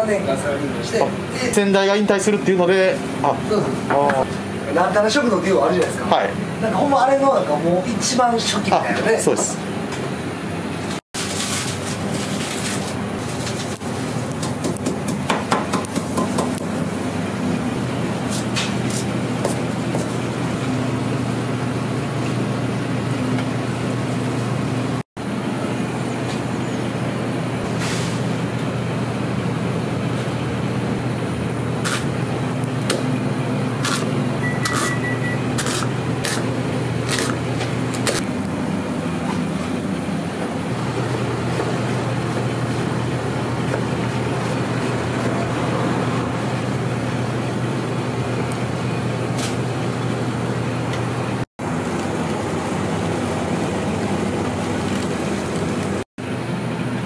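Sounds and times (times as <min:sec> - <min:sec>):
kitchen roar: 0:00.0 - 0:57.0
quick electronic beeps: 0:34.4 - 0:35.5.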